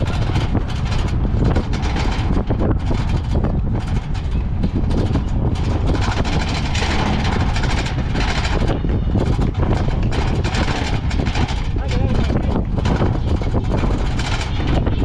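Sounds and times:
wheels and wooden bodies rattling: 0.0s - 15.0s
wooden carts rolling on pavement: 0.0s - 15.0s.

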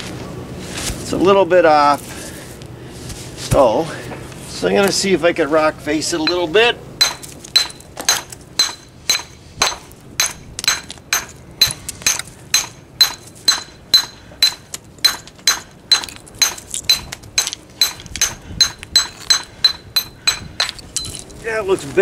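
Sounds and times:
hammer striking stone: 6.3s - 20.8s.

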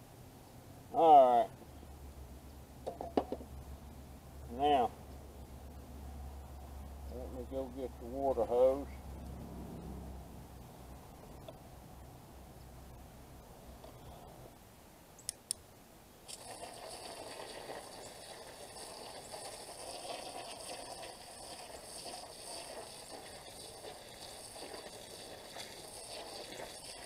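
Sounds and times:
sharp clicks: 15.2s - 15.6s
garden hose spraying water on soil: 16.2s - 27.0s.

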